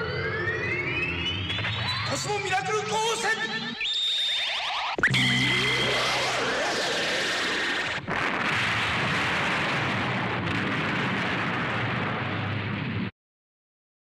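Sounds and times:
explosion roar: 0:05.0 - 0:13.1.

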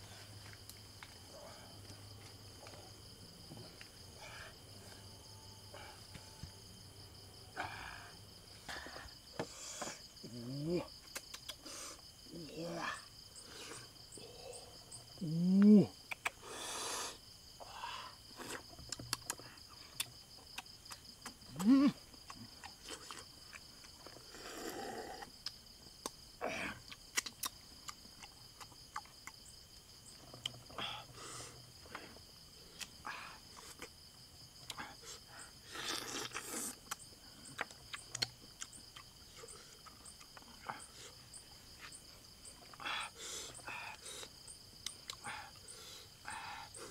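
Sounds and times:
night insects chirring: 0:00.0 - 0:46.9
slurping and chewing: 0:22.2 - 0:25.6, 0:26.8 - 0:29.4, 0:34.6 - 0:41.1.

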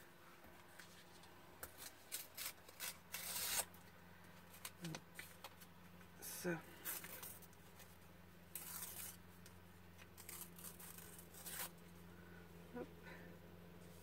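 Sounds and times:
faint low hum: 0:00.0 - 0:14.0
paper rustling and tearing: 0:01.6 - 0:03.8, 0:06.7 - 0:11.8.

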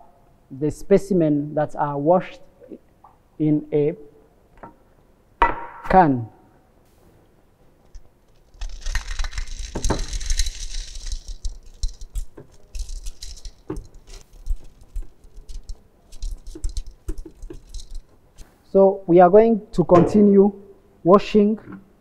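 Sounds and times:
stones clicking and rattling: 0:07.8 - 0:18.5
wet gravel pattering into metal pan: 0:08.3 - 0:18.5.

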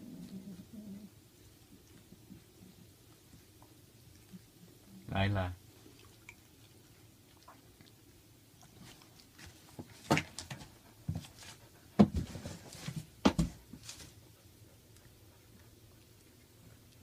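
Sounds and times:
rustling of blanket and newspaper: 0:08.8 - 0:14.2.

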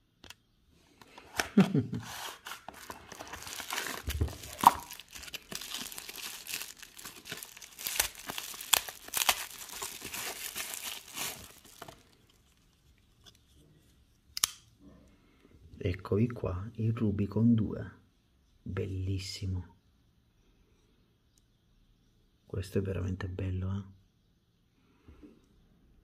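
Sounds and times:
bubble wrap crinkling and crackling: 0:01.3 - 0:13.3.

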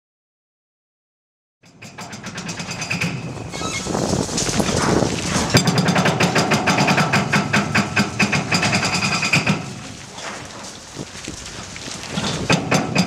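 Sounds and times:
hydraulic breaker hammering concrete: 0:01.6 - 0:10.4, 0:12.1 - 0:13.0.

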